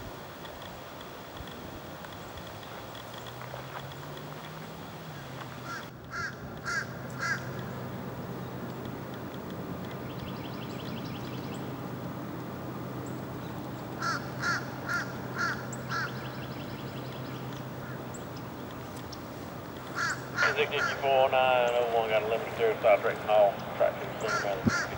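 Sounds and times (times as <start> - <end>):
distant diesel locomotive hum: 2.4 - 24.9
crow cawing: 5.6 - 7.5, 14.0 - 16.2, 19.9 - 20.4, 24.3 - 24.9.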